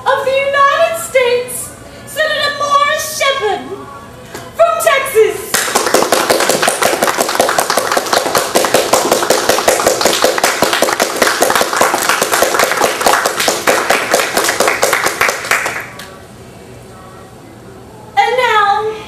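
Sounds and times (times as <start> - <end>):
crowd applauding: 5.5 - 16.1.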